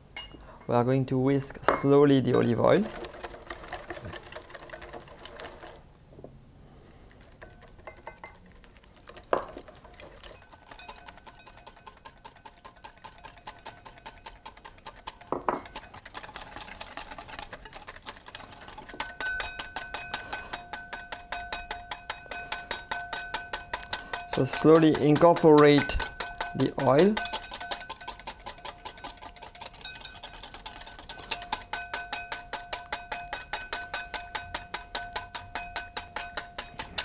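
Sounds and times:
whisk clinking in glass bowl: 1.7s - 5.8s, 7.4s - 37.0s.

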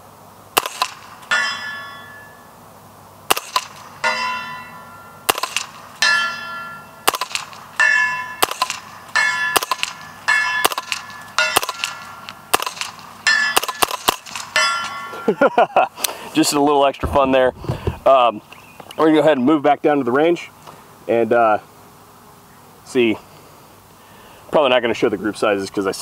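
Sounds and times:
suppressed rifle shots: 0.6s - 1.1s, 3.3s - 3.9s, 5.3s - 5.8s, 7.0s - 7.6s, 8.4s - 8.9s, 9.6s - 13.0s, 13.6s - 14.6s
steel plate target ringing: 0.8s - 2.5s, 3.4s - 15.3s.

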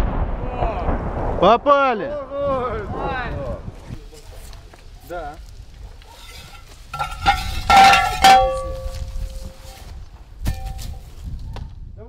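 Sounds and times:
ringing metal clanks: 6.1s - 9.8s, 10.5s - 11.0s.

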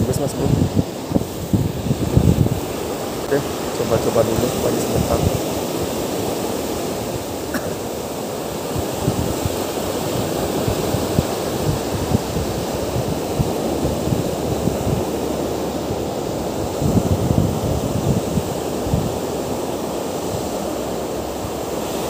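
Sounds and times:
surf breaking on a beach: 0.0s - 22.0s
wind buffeting the microphone: 0.0s - 22.0s.

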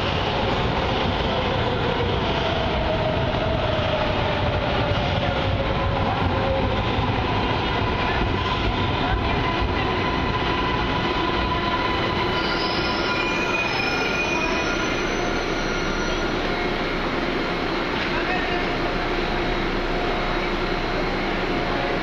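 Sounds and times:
train cars rumbling: 0.0s - 22.0s
train brakes squealing: 11.9s - 16.8s.

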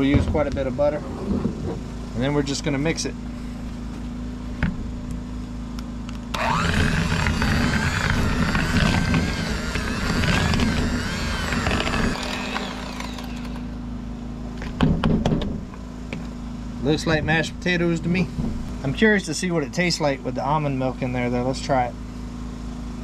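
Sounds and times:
generator humming: 1.8s - 22.2s
electric hand mixer whine: 6.3s - 13.8s.

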